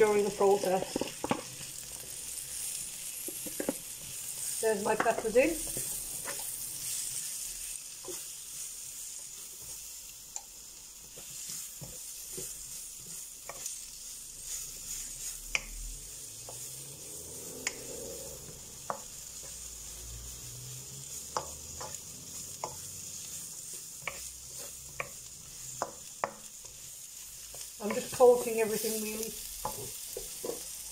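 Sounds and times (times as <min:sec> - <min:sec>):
vegetables sizzling in a hot pan: 0:00.0 - 0:30.9
utensil tapping and scraping pan: 0:00.4 - 0:01.6, 0:03.2 - 0:06.6, 0:11.1 - 0:13.8, 0:17.6 - 0:19.6, 0:21.3 - 0:22.9, 0:23.5 - 0:26.8, 0:27.5 - 0:28.9, 0:29.6 - 0:30.7.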